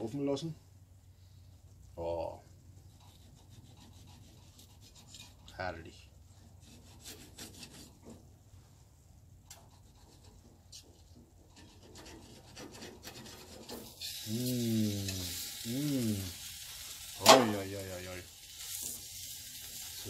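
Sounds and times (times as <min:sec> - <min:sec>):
steady hiss: 0:00.0 - 0:20.0
knife and fork scraping metal tray: 0:03.0 - 0:05.6, 0:11.5 - 0:14.2
man humming: 0:14.2 - 0:16.3.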